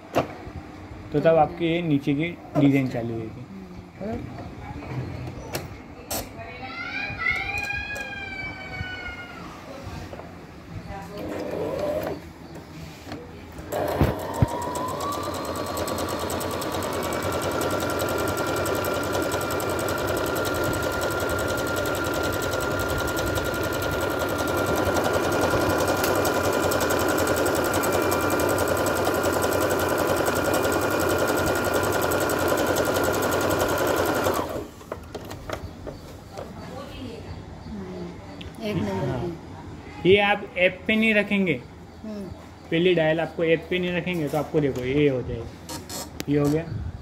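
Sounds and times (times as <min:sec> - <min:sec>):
sewing machine running: 0:11.2 - 0:12.2, 0:13.7 - 0:34.8.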